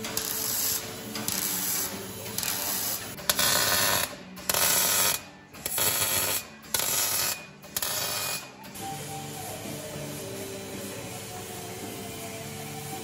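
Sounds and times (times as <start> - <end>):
welder arc crackling: 0.0 - 8.4.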